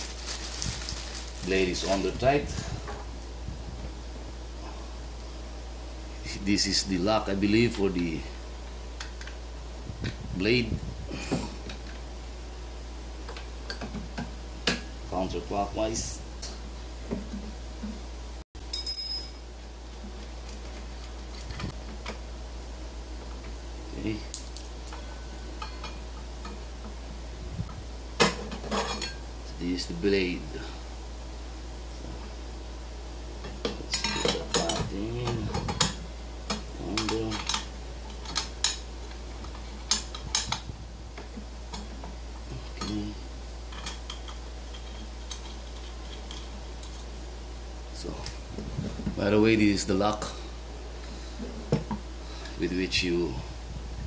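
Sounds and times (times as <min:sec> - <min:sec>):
high metallic ring: 0:18.7 - 0:19.5.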